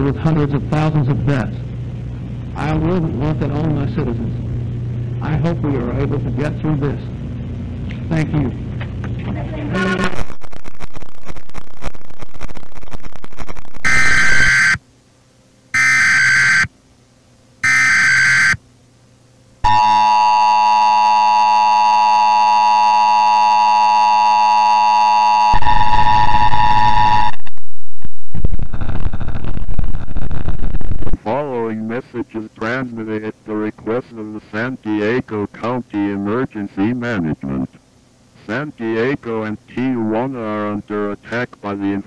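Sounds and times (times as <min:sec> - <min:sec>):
harsh distorted noise: 0:00.1 - 0:14.8, 0:15.8 - 0:16.7, 0:17.6 - 0:18.6, 0:25.5 - 0:31.5
static crackle: 0:00.5 - 0:14.8, 0:15.8 - 0:16.7, 0:21.2 - 0:31.2
screeching data bursts: 0:09.8 - 0:14.8, 0:15.8 - 0:16.7, 0:17.6 - 0:18.6, 0:19.6 - 0:27.5
two-tone attention signal: 0:19.6 - 0:27.4.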